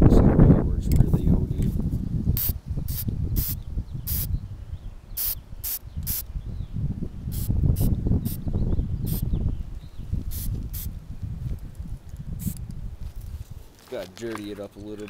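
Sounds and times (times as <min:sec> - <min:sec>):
wind rumble on microphone: 0:00.0 - 0:15.0
spray can hissing spritzes: 0:02.4 - 0:04.3, 0:05.2 - 0:06.2, 0:07.3 - 0:08.4, 0:10.3 - 0:10.9, 0:12.4 - 0:12.6.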